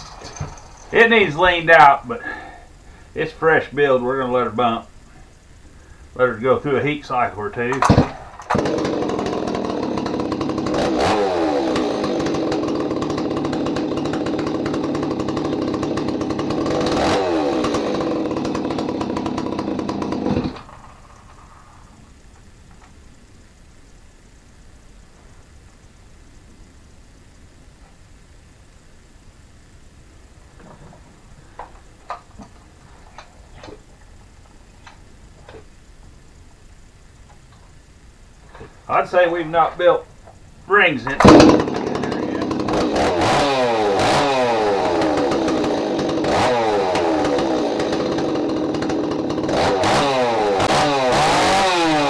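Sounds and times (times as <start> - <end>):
chainsaw engine idling: 0.0 - 22.9, 38.5 - 52.0
chainsaw throttle blips: 7.7 - 20.9, 41.0 - 52.0.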